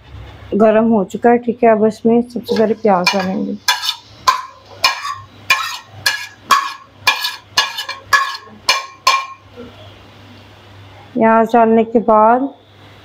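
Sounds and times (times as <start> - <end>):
metal spoon clinking on ceramic plate: 3.0 - 9.5.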